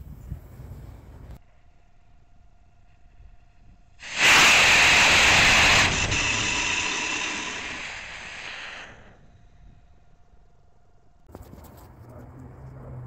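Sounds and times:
rocket motor rushing hiss: 0:04.0 - 0:09.3.

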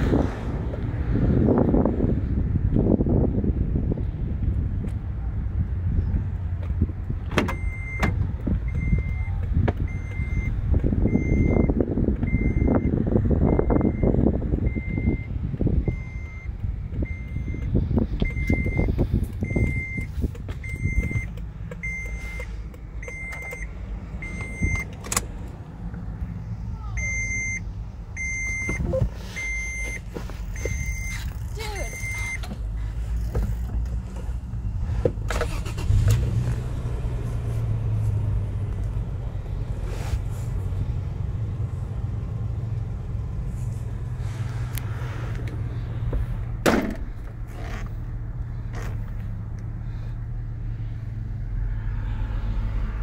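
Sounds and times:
wind buffeting microphone: 0:00.0 - 0:07.4, 0:08.1 - 0:21.3
car warning chime beeping: 0:07.5 - 0:25.0, 0:26.9 - 0:32.5.

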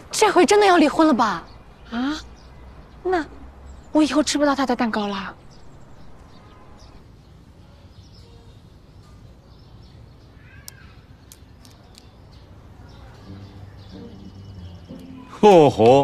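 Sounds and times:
faint high chirps: 0:08.2 - 0:16.0.

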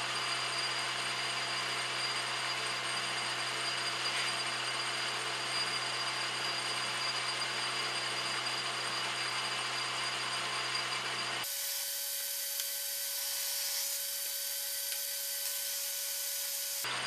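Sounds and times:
lathe drilling whir: 0:00.0 - 0:17.0
steady whine and hiss: 0:11.5 - 0:16.9.

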